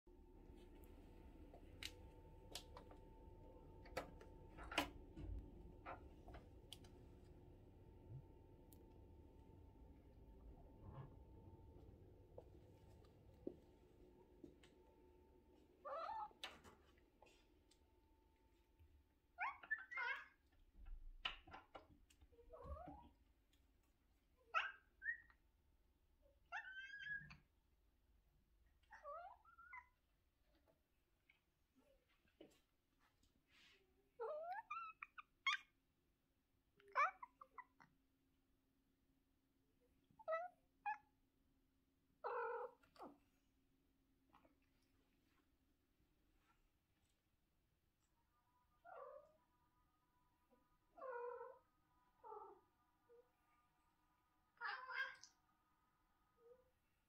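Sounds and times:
cat meowing: 15.8 - 16.4, 54.6 - 55.3.

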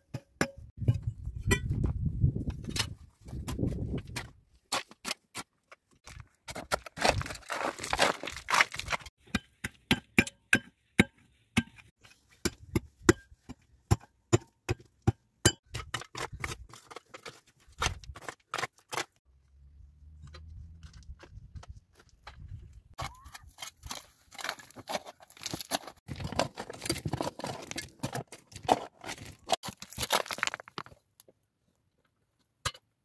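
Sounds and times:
gravel scraping and rattling: 0.8 - 5.3, 6.0 - 9.1, 15.8 - 31.0.

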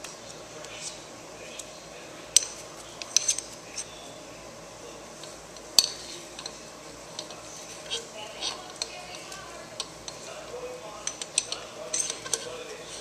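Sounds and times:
metal parts clinking: 11.0 - 13.0.

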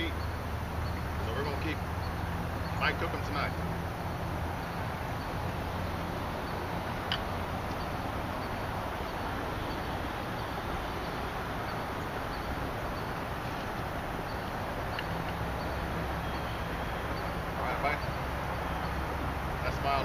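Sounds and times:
outdoor background hiss: 0.0 - 20.0
faint high chirp: 6.4 - 19.1.

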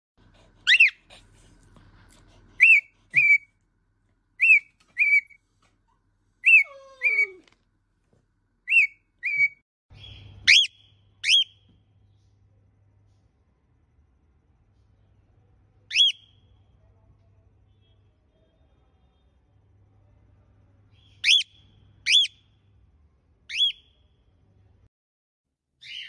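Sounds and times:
cockatiel whistled chirps: 2.6 - 3.5, 4.4 - 5.4, 8.7 - 11.6, 15.9 - 16.3, 21.2 - 22.4, 23.5 - 23.9.

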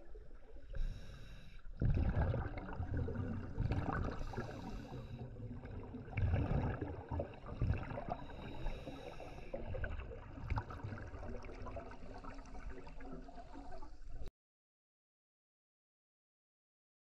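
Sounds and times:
scuba regulator bubbling underwater: 1.8 - 13.8.

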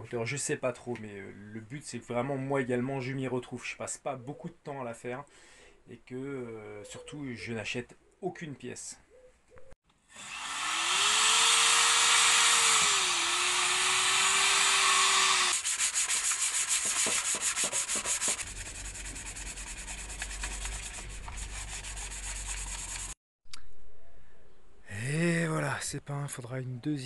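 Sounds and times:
power tool grinding: 10.1 - 23.2
sandpaper rasping on metal: 14.0 - 23.2.

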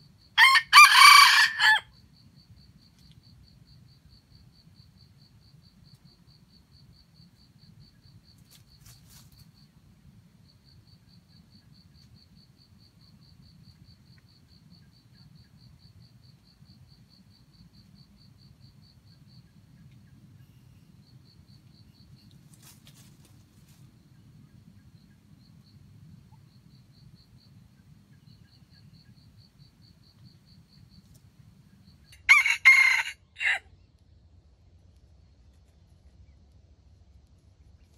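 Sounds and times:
rooster crowing: 0.4 - 1.9, 32.1 - 33.7
faint fast insect ticking: 1.9 - 32.2.

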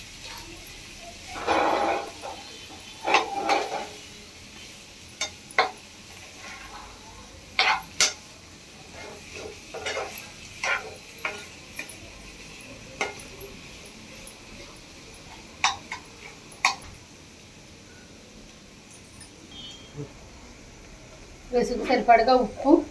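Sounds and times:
faint frying hiss: 0.0 - 22.9
metal spatula scraping frying pan: 1.3 - 4.1, 5.2 - 6.9, 7.6 - 8.2, 8.9 - 12.0.

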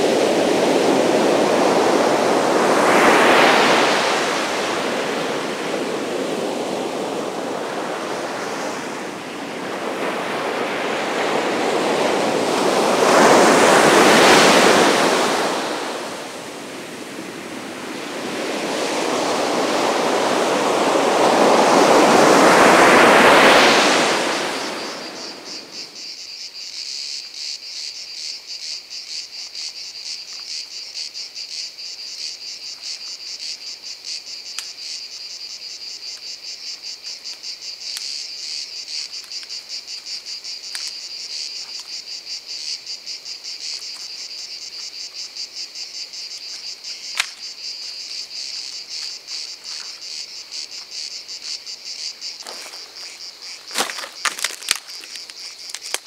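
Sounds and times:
ocean surf: 0.0 - 26.0
insects chirring: 0.0 - 56.0
dry branches crackling: 53.6 - 56.0.

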